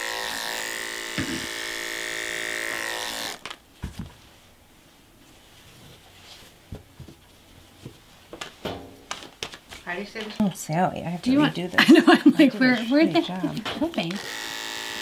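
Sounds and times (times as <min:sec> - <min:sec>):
electric hair clippers buzzing: 0:00.0 - 0:03.6, 0:13.9 - 0:15.0
soft handling knocks: 0:05.7 - 0:10.5.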